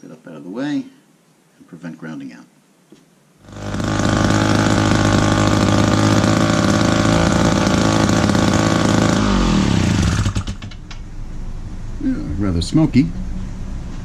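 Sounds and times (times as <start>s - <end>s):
chainsaw engine idling: 3.4s - 10.8s.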